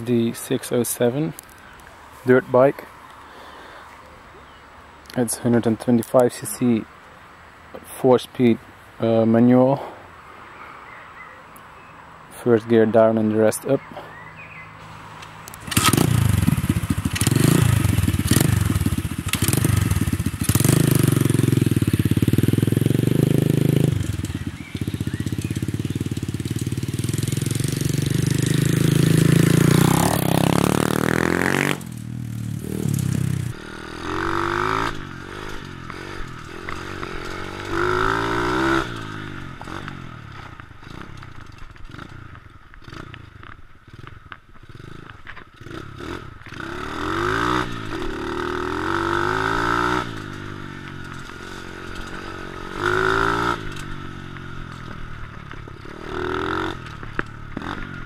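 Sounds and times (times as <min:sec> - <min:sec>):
motorbike engine revving: 0:15.4 - 0:58.0.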